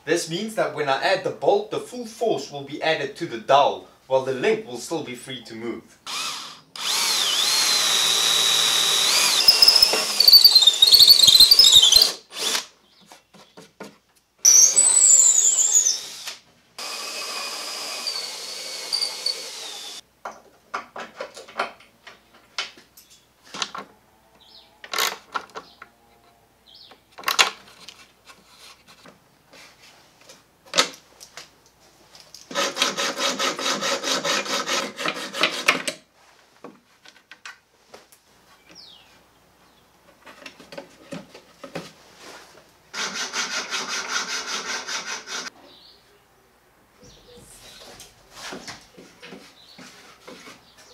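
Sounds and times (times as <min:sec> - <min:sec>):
power drill whining: 0:06.1 - 0:12.7, 0:14.5 - 0:20.0, 0:43.0 - 0:45.5
clicks and knocks of parts: 0:27.2 - 0:28.1
hacksaw sawing a bolt: 0:32.5 - 0:36.0, 0:42.9 - 0:45.6.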